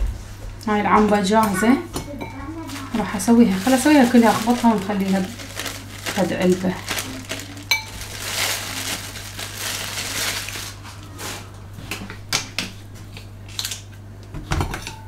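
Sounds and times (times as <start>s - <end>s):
plastic bag crinkling: 2.5s - 11.5s.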